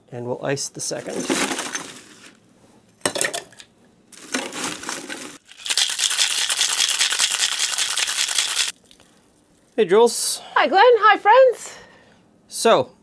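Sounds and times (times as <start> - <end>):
ice rattling in a cocktail shaker: 4.8 - 9.8
ice clattering into a glass: 5.4 - 8.8.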